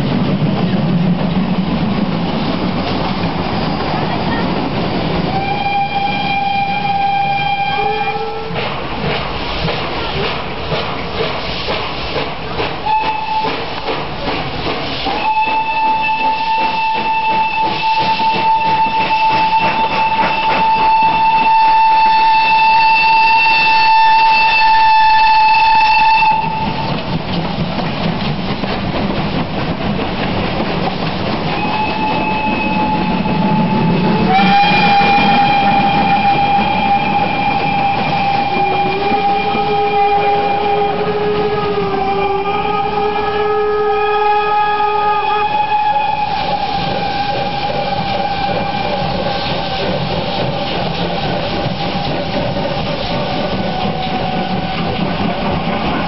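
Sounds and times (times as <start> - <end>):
locomotive steam hiss and chuff: 0.0 - 56.0
steam locomotive whistle: 3.3 - 8.8, 12.8 - 14.0, 14.9 - 27.0, 31.4 - 56.0.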